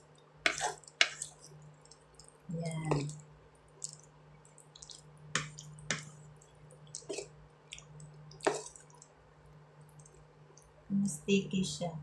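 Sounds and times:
food squishing in sauce: 0:00.0 - 0:09.2.

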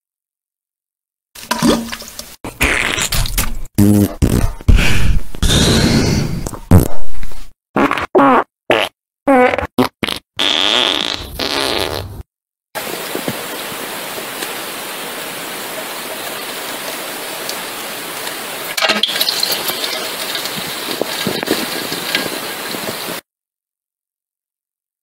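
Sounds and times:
fart sounds: 0:02.5 - 0:12.3
steady hiss: 0:12.8 - 0:23.2.

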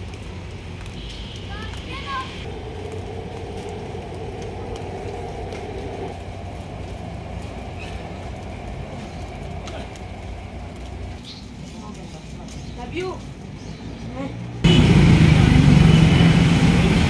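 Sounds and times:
traffic rumble: 0:00.0 - 0:17.0
humming tone: 0:02.4 - 0:08.1.

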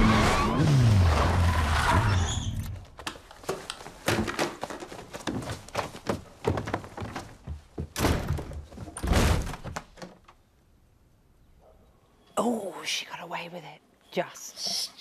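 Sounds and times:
fight thuds knocks and slams: 0:07.8 - 0:10.0.

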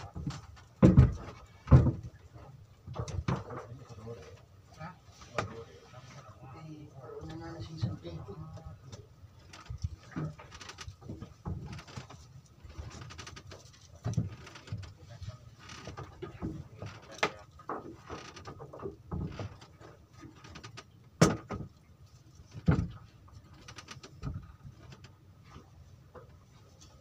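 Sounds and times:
sharp knocks: 0:00.1 - 0:02.1, 0:21.2 - 0:21.7
gear and boards knocking on deck: 0:00.2 - 0:02.1.

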